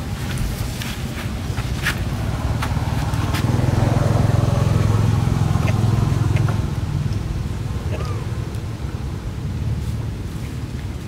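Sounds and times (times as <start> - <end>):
vehicle engine running: 1.5 - 9.8.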